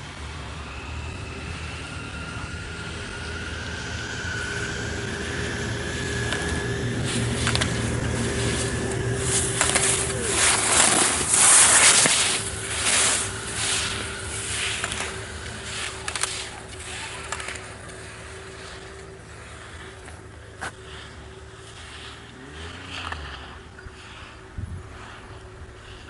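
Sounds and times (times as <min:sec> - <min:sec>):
steady engine hum: 0:00.0 - 0:26.0
skis scraping on hard snow: 0:05.6 - 0:26.0
skier striking slalom poles: 0:06.2 - 0:24.4.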